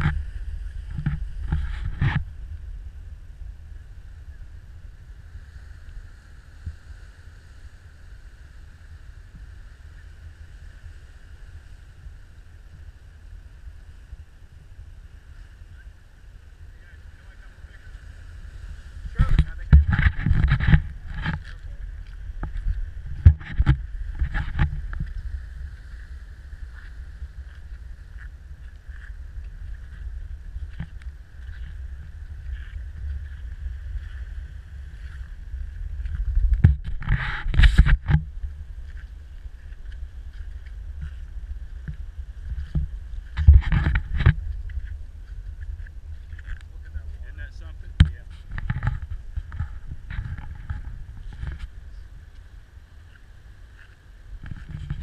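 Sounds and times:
wind rumbling on microphone: 0.0s - 55.0s
thin high hum: 13.0s - 55.0s
footsteps on rocky trail: 18.9s - 26.0s, 26.6s - 47.4s.

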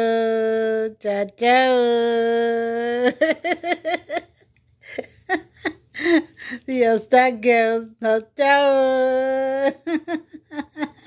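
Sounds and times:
woman singing: 0.0s - 3.4s, 6.7s - 10.0s
woman laughing: 2.7s - 6.7s, 9.3s - 11.0s.

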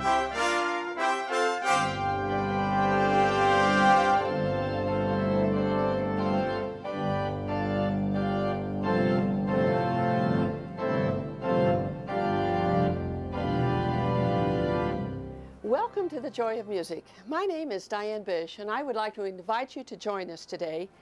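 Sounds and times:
organ playing sustained chords: 0.0s - 16.3s.

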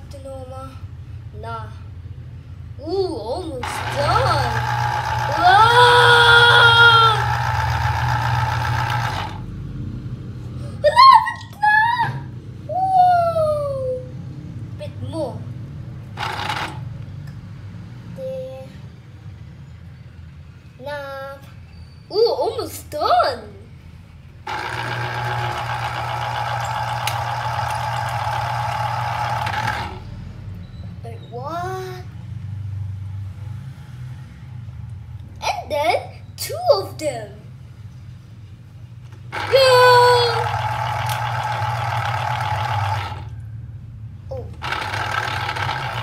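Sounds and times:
electric juicer motor humming: 3.6s - 9.5s, 16.1s - 16.9s, 24.4s - 30.1s, 39.3s - 43.4s, 44.5s - 46.0s.

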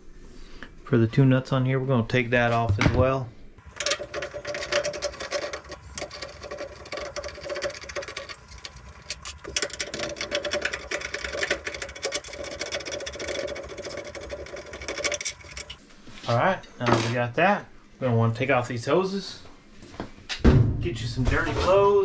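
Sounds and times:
nut driver clicking and rattling: 3.6s - 15.8s.

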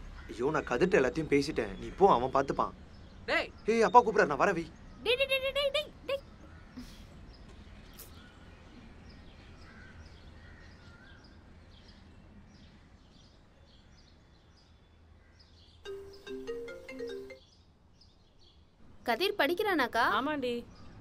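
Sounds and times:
small birds chirping: 0.0s - 21.0s
short melody of held notes: 15.9s - 17.4s.

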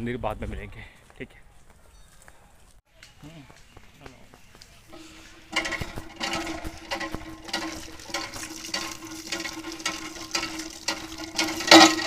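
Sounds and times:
water splashing from hand pump: 5.0s - 12.0s.

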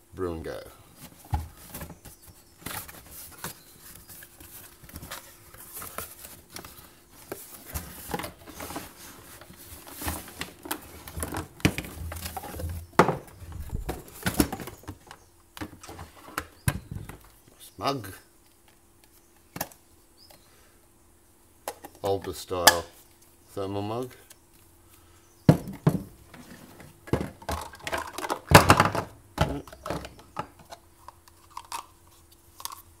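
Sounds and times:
cardboard rustling and scraping: 0.9s - 17.2s.

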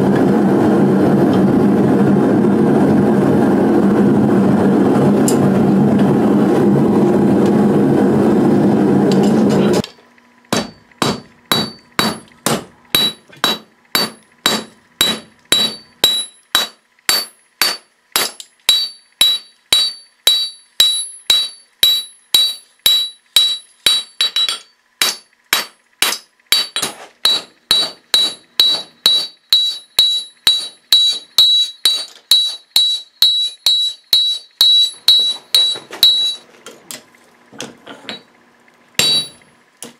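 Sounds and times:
gas forge burner rushing: 0.0s - 16.5s
hammer ringing on anvil: 10.5s - 36.4s, 39.0s - 39.5s.

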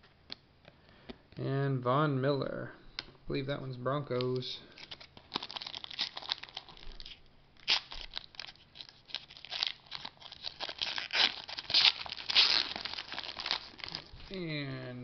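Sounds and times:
foil wrapper tearing and crinkling: 4.8s - 14.2s.

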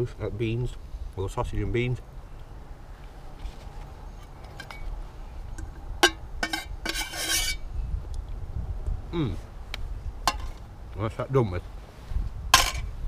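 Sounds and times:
cutlery scraping metal pot: 5.6s - 7.6s
cutlery clinking on metal pot: 6.0s - 7.6s.

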